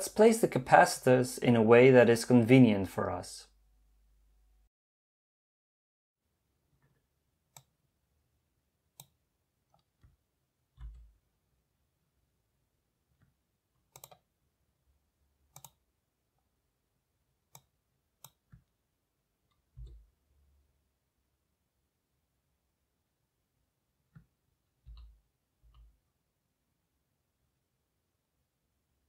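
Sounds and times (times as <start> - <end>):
computer mouse clicks: 6.8 - 7.8, 9.0 - 10.2, 13.2 - 14.3, 15.5 - 15.8, 17.5 - 18.8, 24.1 - 26.0.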